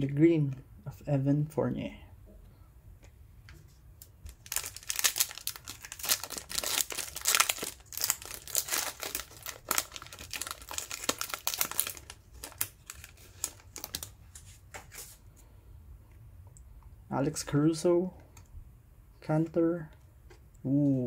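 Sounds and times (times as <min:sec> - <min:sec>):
foil wrapper crinkling and tearing: 0:04.3 - 0:14.2.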